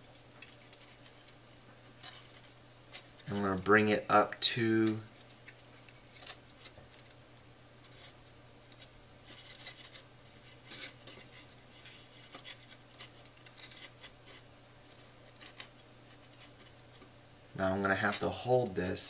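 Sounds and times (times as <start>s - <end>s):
wire rubbing and ticking on clay: 0.0s - 7.2s, 7.8s - 17.2s
steady low hum: 0.0s - 19.0s.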